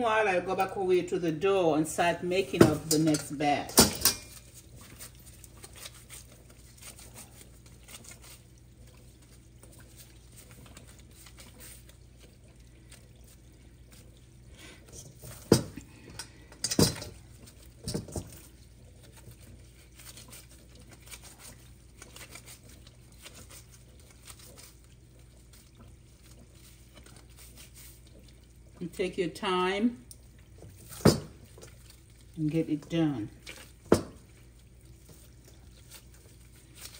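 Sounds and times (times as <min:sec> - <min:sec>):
oil bubbling and crackling: 0:00.0 - 0:36.9.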